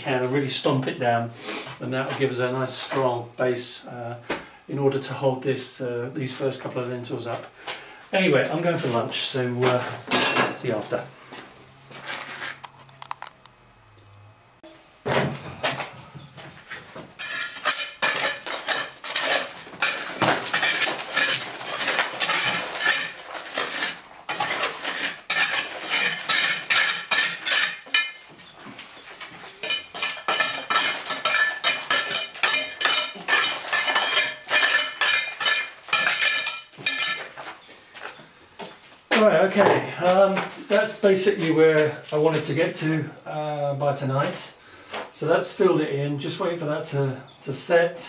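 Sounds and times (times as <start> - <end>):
trowel scraping stone and mortar: 17.2 - 28.3, 29.0 - 37.4.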